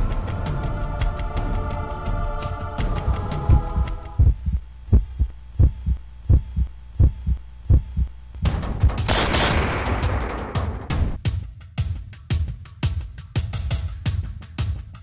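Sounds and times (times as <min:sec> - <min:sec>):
heartbeat thumps: 0:02.4 - 0:09.2.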